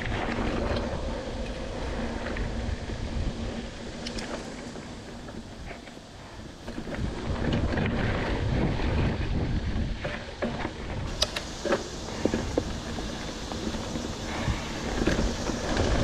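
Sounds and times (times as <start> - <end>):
bike tyres rolling on dirt: 0.0 - 16.0
wind buffeting microphone: 0.0 - 16.0
bike clattering over bumps: 6.6 - 16.0.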